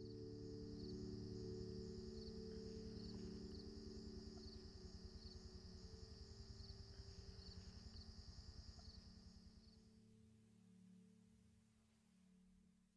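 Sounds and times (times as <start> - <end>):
low held drone: 0.0 - 7.9
high insect trill: 0.0 - 10.0.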